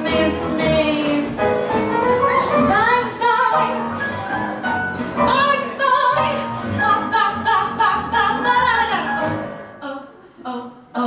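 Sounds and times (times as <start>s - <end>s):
woman singing with band: 0.0s - 1.4s, 5.3s - 9.2s.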